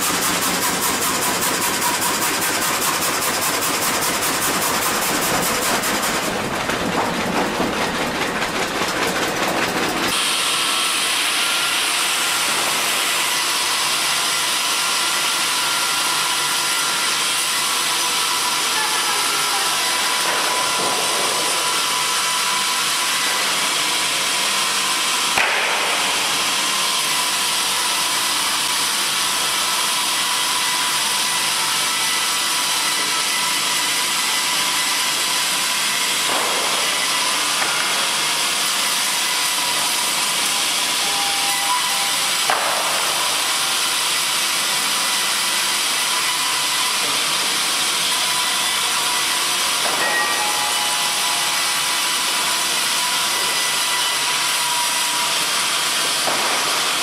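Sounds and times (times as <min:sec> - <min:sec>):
circular saw ripping a log: 0:00.0 - 0:06.5
wood knocking on machine: 0:00.0 - 0:10.4.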